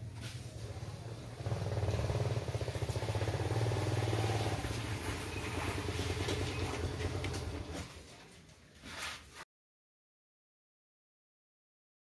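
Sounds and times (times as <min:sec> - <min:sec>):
small petrol engine running: 0:00.1 - 0:07.9.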